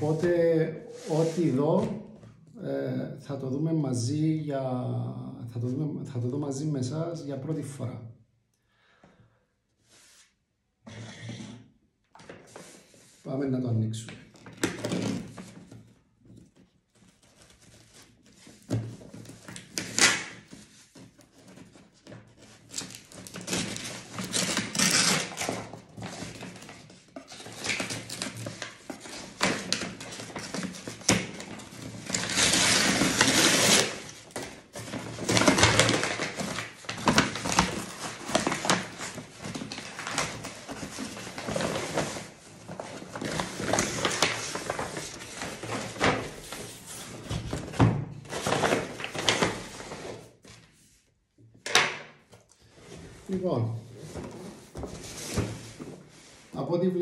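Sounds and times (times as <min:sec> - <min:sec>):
packaging rustling and tearing: 0:14.2 - 0:50.7.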